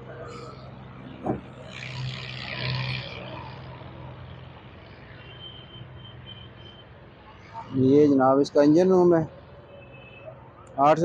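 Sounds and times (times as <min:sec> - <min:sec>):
engine hum: 0:00.0 - 0:05.5.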